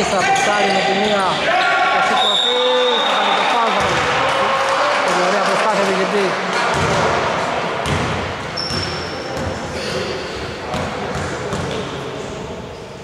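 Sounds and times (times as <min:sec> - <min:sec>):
basketball bouncing on wooden court: 0:06.7 - 0:07.1, 0:07.8 - 0:09.6, 0:10.7 - 0:11.9.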